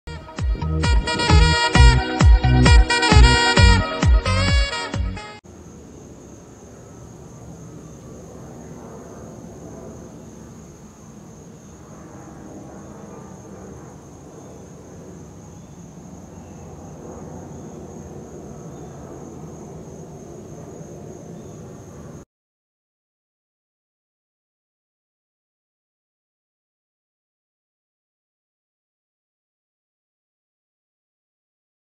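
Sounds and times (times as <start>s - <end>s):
distant jet rumble overhead: 5.4s - 22.2s.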